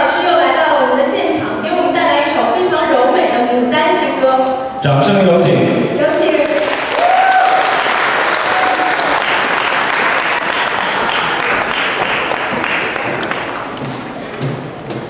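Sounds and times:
audience applauding: 0:06.3 - 0:14.0.

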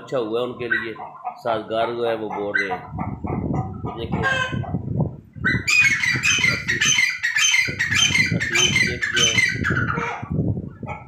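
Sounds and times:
partridges calling: 0:00.4 - 0:01.4, 0:05.5 - 0:10.2.

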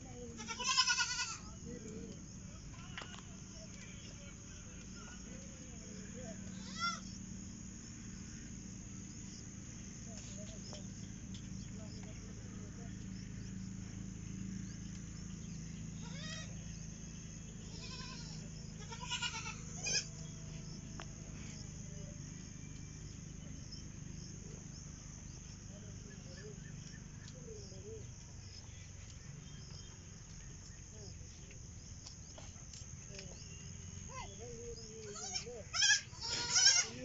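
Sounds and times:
goats bleating: 0:00.4 - 0:01.4, 0:17.7 - 0:20.1, 0:35.0 - 0:37.0.

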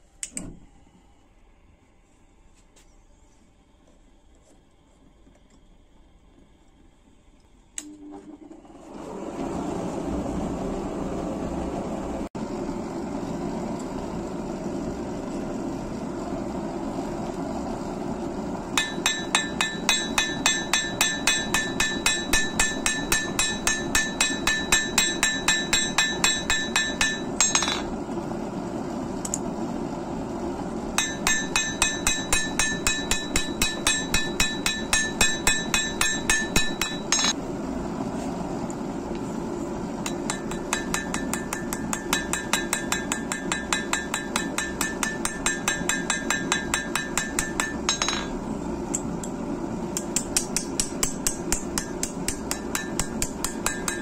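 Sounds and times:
steady low hum: 0:00.0 - 0:08.4, 0:10.1 - 0:54.0
hammer blows on metal anvil: 0:18.8 - 0:27.9, 0:31.0 - 0:37.4, 0:40.0 - 0:48.4, 0:50.0 - 0:54.0.

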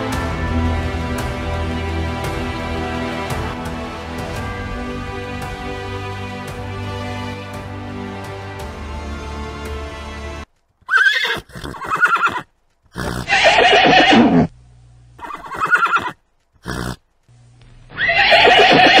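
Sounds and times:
horses neighing: 0:10.8 - 0:14.5, 0:15.2 - 0:17.0, 0:17.9 - 0:19.0.

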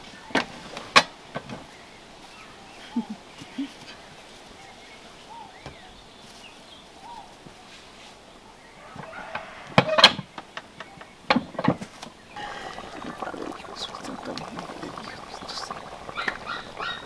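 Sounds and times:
crackling: 0:12.4 - 0:17.0
hen clucking: 0:12.4 - 0:17.0.

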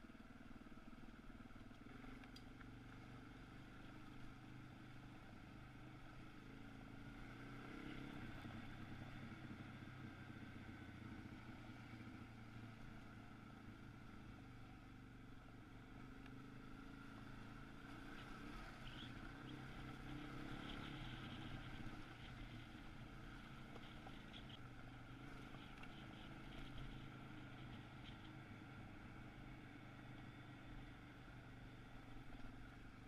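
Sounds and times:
faint motorcycle engine: 0:00.0 - 0:33.0.

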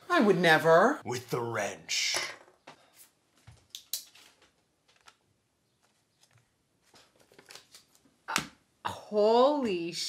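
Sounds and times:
cards clicking and rustling: 0:03.6 - 0:08.5.

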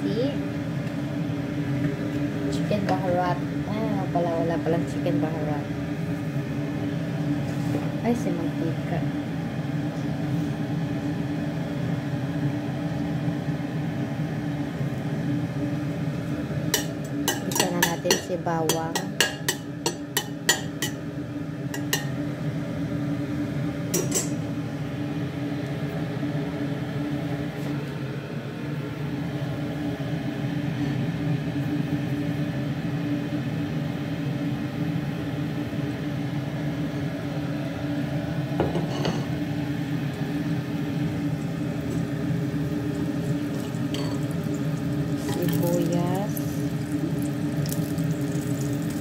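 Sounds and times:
steady low hum with hiss: 0:00.0 - 0:49.0
metal skimmer clinking on pot: 0:43.5 - 0:44.4.

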